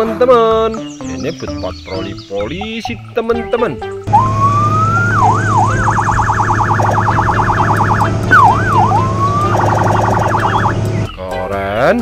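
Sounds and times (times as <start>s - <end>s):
low hum: 4.0s - 11.1s
electronic police siren: 4.1s - 10.8s.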